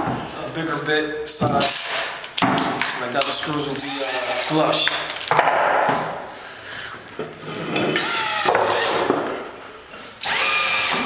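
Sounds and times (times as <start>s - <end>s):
cordless drill cutting into wood: 3.7s - 4.6s, 7.9s - 9.1s, 10.2s - 11.0s.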